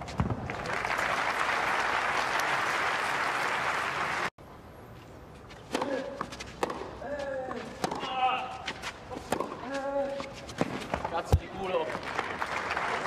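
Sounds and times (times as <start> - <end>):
crowd applauding: 0.4 - 4.3, 12.0 - 13.0.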